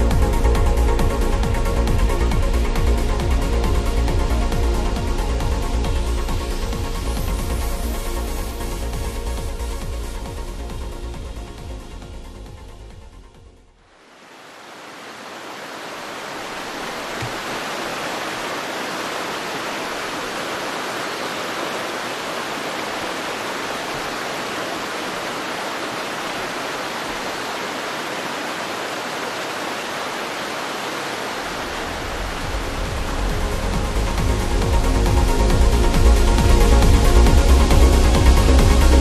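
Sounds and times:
stream rushing over rocks: 13.8s - 39.0s.

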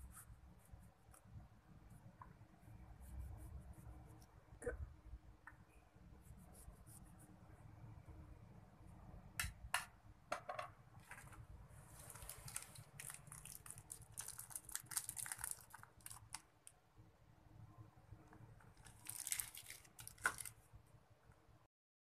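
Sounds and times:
plastic wrapping crinkling: 11.9s - 16.5s, 18.8s - 20.6s.

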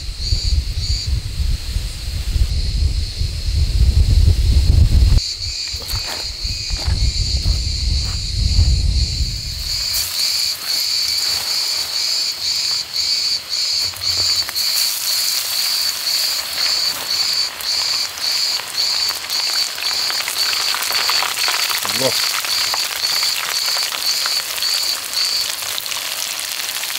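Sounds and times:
insect chirping: 0.0s - 26.4s
fish sizzling in hot oil: 9.5s - 26.9s.

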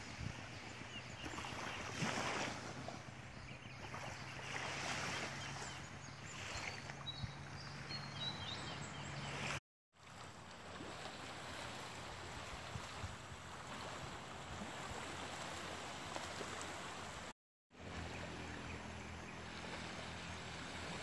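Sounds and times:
birds chirping: 2.9s - 9.6s
waves washing onto beach: 9.2s - 21.0s.

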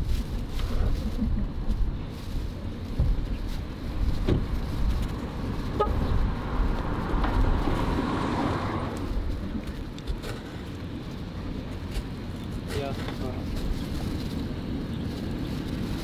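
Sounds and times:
car passing: 3.5s - 11.8s.

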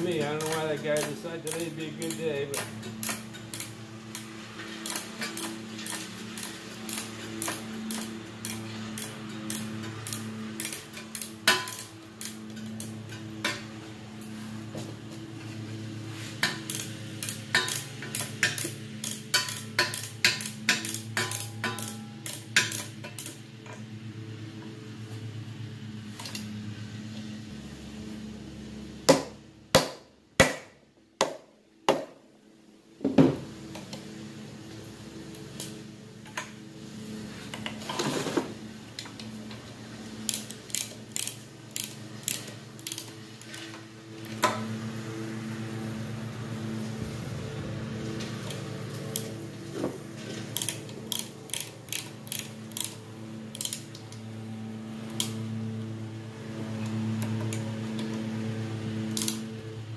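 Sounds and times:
wrench clicking: 0.0s - 13.7s, 16.4s - 23.4s, 40.2s - 43.8s, 50.5s - 54.2s, 55.1s - 55.4s, 59.1s - 59.5s
lawn mower engine humming: 0.0s - 30.4s, 32.4s - 59.9s
sharp metallic knocks: 17.5s - 22.9s.

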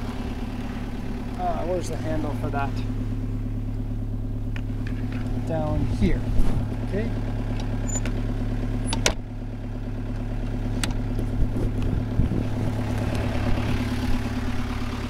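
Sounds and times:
diesel engine idling: 0.0s - 15.0s
seat hinge metallic click: 8.8s - 9.2s.

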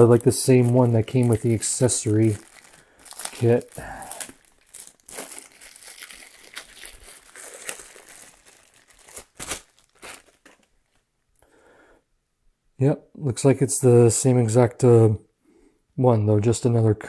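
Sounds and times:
packaging crinkling and rustling: 0.0s - 11.1s.

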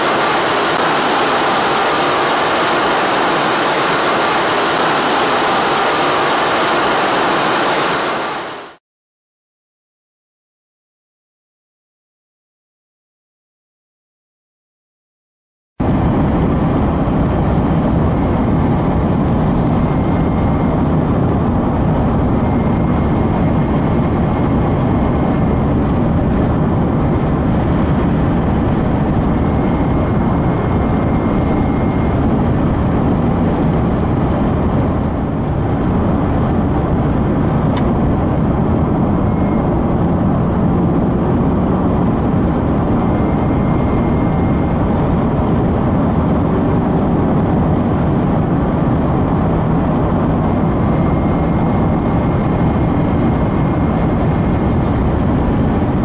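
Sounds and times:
car driving at highway speed: 32.2s - 48.6s.

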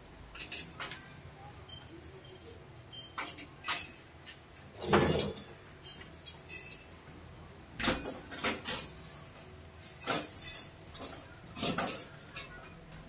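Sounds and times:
small metal parts clicking: 4.9s - 7.2s.

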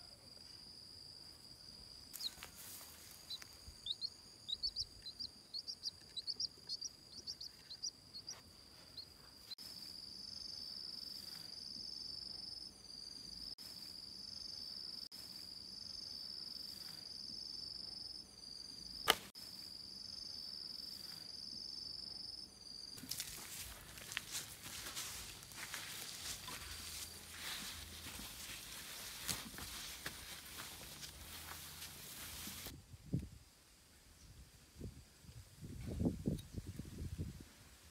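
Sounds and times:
insects chirping: 0.0s - 32.7s
footsteps through grass: 2.1s - 4.0s, 23.0s - 32.7s.

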